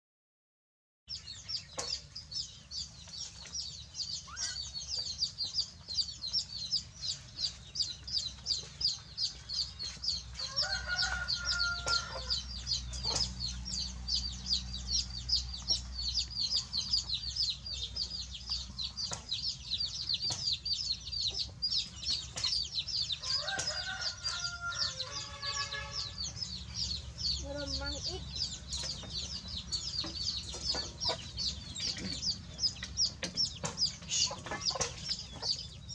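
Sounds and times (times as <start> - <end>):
chickens chirping: 1.1 - 35.9
rooster crowing: 10.4 - 12.4, 23.2 - 26.2.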